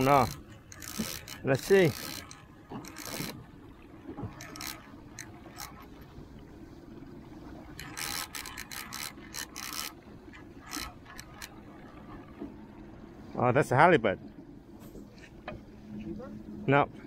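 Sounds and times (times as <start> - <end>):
fishing reel clicks: 0.0 - 3.4, 4.4 - 5.8, 7.8 - 10.0, 10.6 - 11.6
fishing reel rasping whir: 0.0 - 3.5, 4.3 - 6.1, 7.6 - 12.3.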